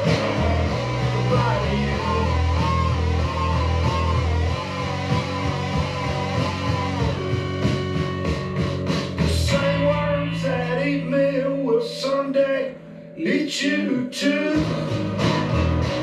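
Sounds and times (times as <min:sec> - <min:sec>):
song with guitar and bass: 0:00.0 - 0:16.0.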